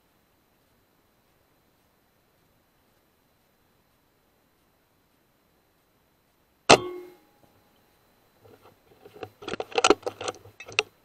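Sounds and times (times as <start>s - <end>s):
clicks and rattles: 8.5s - 10.9s.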